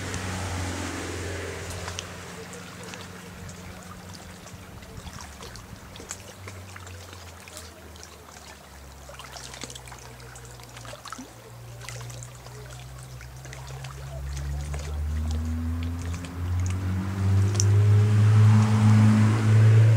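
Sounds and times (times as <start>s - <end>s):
low motor drone: 0.0s - 5.0s, 12.6s - 19.9s.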